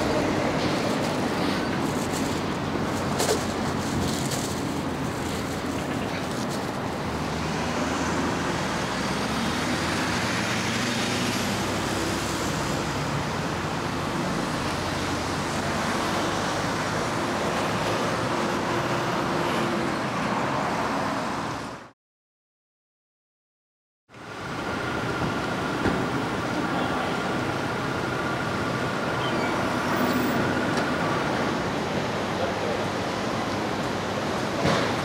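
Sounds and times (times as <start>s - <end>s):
cars passing: 0.0s - 21.9s.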